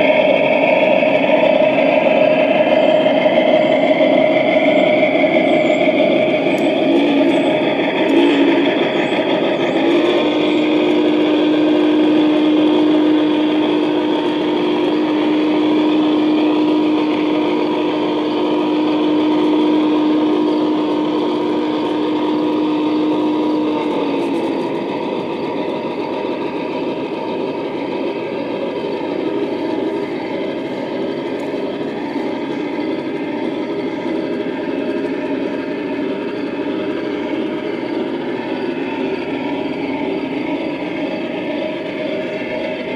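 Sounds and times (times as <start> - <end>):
model steam locomotive sounds: 0.0 - 42.9
steady held tone: 0.0 - 42.9.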